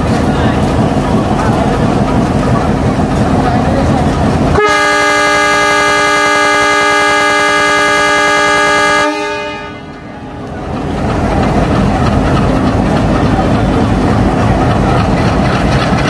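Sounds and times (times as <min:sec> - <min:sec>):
diesel engine running: 0:00.0 - 0:16.0
locomotive air horn blast: 0:04.6 - 0:10.1.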